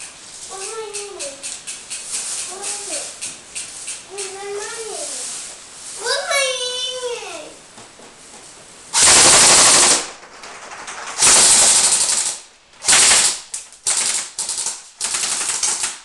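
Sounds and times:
airsoft rifle firing bursts: 0:09.0 - 0:16.0.

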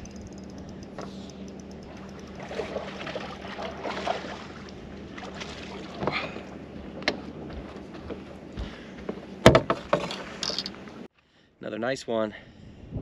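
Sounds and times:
low hum: 0:00.0 - 0:11.1
water splashing against hull: 0:01.6 - 0:08.3.

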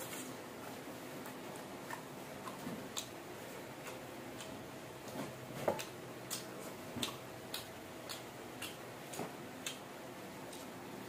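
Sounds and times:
chewing with wet mouth clicks: 0:01.2 - 0:03.2, 0:05.8 - 0:09.9.

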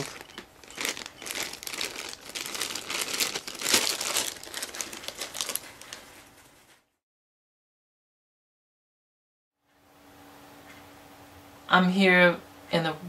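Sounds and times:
plastic bag crinkling: 0:00.0 - 0:06.7.

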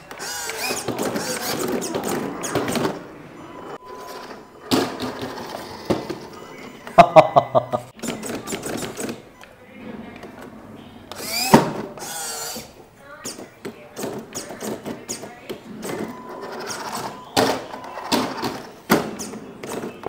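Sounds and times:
small servos whirring: 0:00.0 - 0:03.1, 0:11.1 - 0:19.8.

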